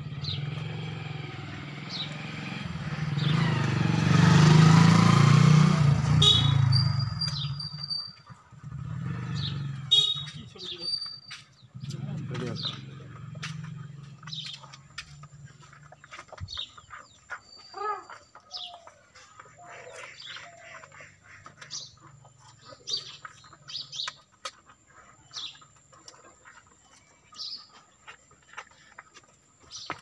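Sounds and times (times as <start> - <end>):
small birds chirping: 0.0 - 4.6, 6.0 - 30.0
hen clucking: 14.5 - 30.0.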